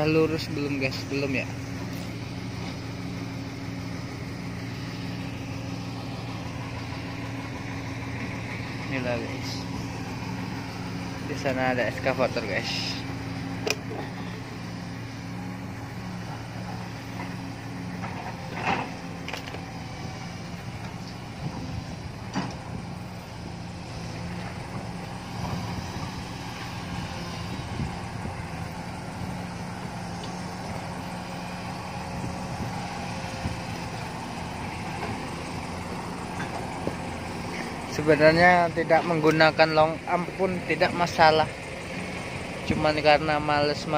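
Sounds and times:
diesel engine running: 0.0s - 43.9s
sharp clicks and knocks: 13.6s - 13.8s, 18.0s - 19.7s, 22.3s - 22.6s.

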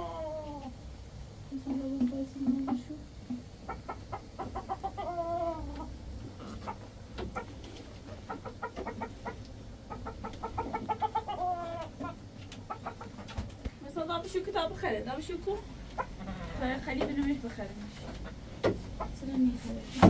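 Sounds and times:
chickens clucking: 0.0s - 20.0s.

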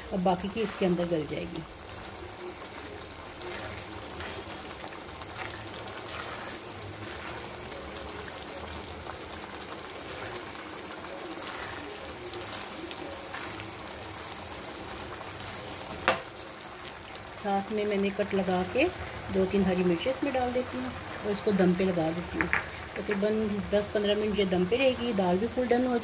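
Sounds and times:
spatula stirring and scraping: 0.0s - 16.6s
curry bubbling in a wok: 0.0s - 26.0s.

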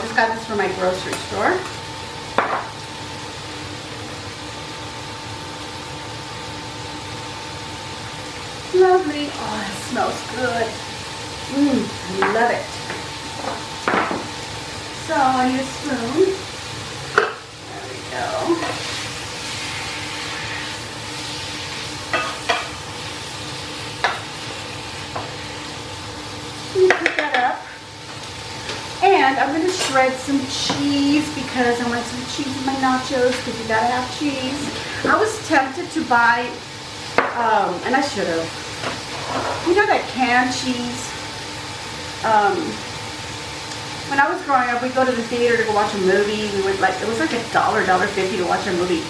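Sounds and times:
meat sizzling in a frying pan: 0.0s - 49.0s
wooden spoon knocking on pan: 12.2s - 14.3s, 17.2s - 17.4s.

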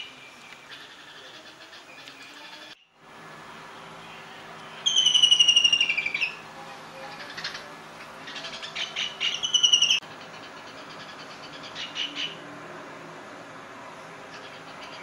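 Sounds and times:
faint bird chatter: 0.0s - 3.0s, 3.8s - 12.4s, 14.2s - 15.0s
kingfisher rattling trill: 4.8s - 6.4s.

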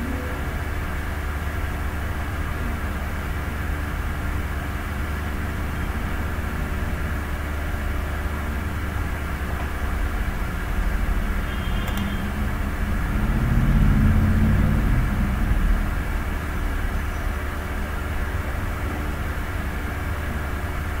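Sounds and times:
low mechanical hum and drone: 0.0s - 21.0s.

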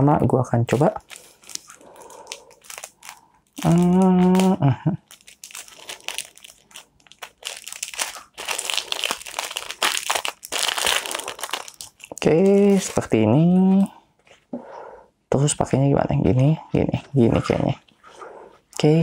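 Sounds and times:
plastic packet crinkling: 0.7s - 13.2s.

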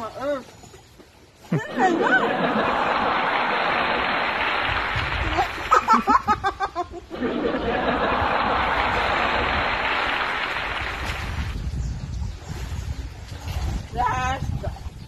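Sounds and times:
waves: 0.0s - 6.4s, 7.1s - 15.0s
wind: 0.0s - 15.0s
person laughing: 5.6s - 7.7s.

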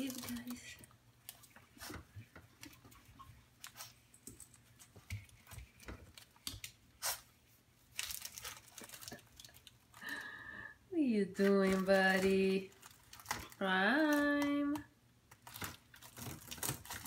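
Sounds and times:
plastic bag crinkling: 0.0s - 1.9s, 7.8s - 10.4s, 11.3s - 17.0s.

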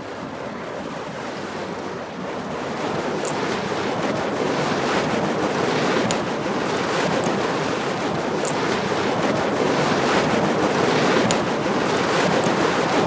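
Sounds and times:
faint high ticks: 3.2s - 3.5s, 6.0s - 6.3s, 7.1s - 7.6s, 8.4s - 8.7s, 11.2s - 11.5s, 12.3s - 12.7s.

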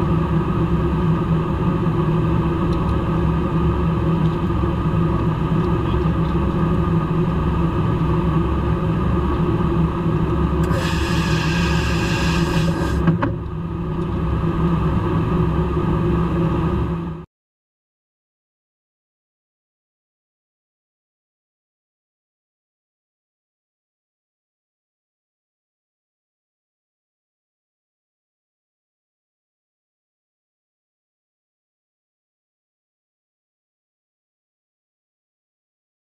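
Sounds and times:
aircraft cabin drone: 0.0s - 17.3s
high hiss: 10.7s - 13.0s.

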